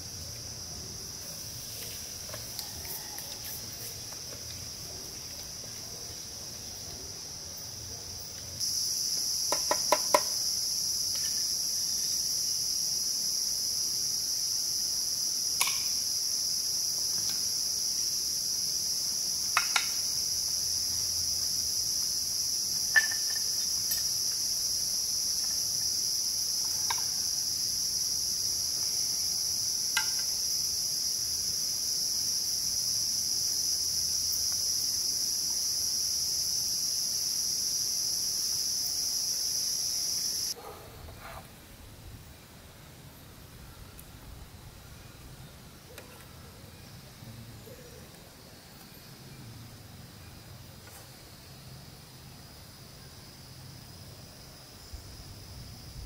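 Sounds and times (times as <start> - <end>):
insect chorus drone: 0.0 - 56.0.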